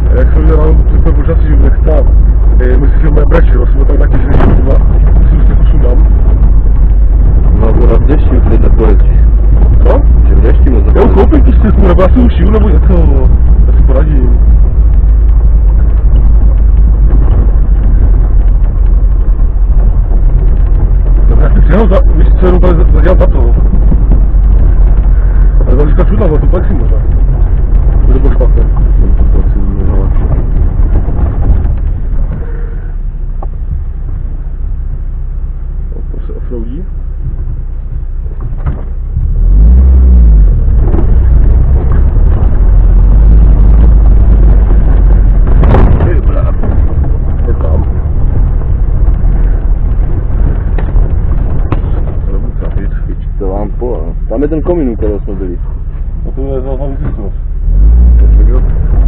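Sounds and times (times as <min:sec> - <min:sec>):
vehicle engine and road rumble: 0:00.0 - 0:59.0.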